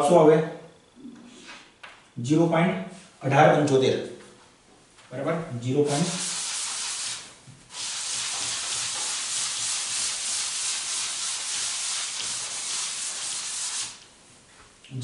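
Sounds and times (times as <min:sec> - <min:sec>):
duster wiping chalkboard: 0:05.9 - 0:14.0.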